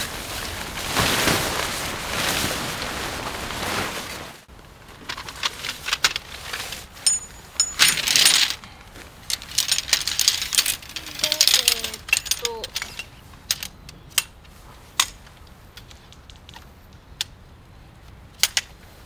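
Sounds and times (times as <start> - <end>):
tent fabric rustling: 0.0 - 13.3
tent poles clinking: 4.7 - 17.4, 18.3 - 18.9.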